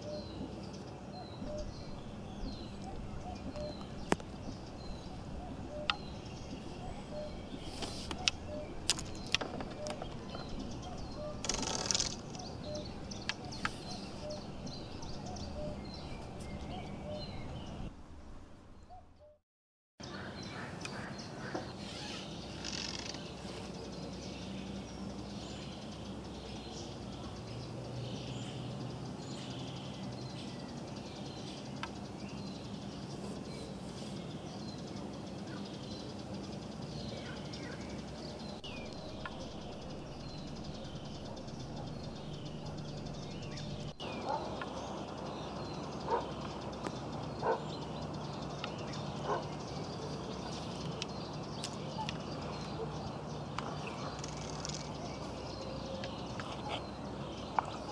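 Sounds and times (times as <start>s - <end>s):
small birds chirping: 0.0s - 17.9s, 20.0s - 57.9s
steady low hum: 0.0s - 19.0s, 23.5s - 57.9s
sharp clicks: 11.4s - 12.5s.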